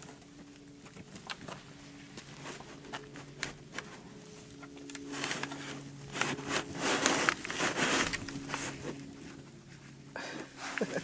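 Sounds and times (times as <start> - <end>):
dog rustling in hay: 4.1 - 10.0.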